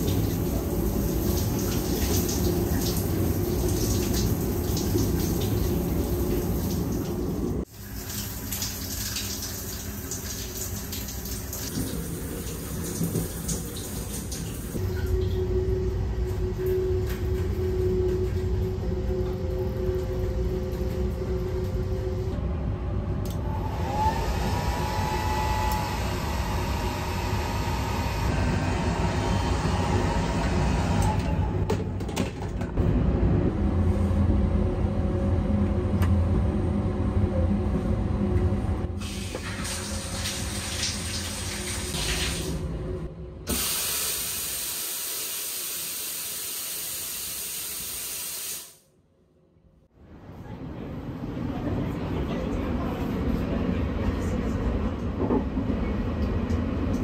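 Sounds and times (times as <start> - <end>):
shower water spraying: 39.0 - 42.6
train rumbling: 49.9 - 57.0.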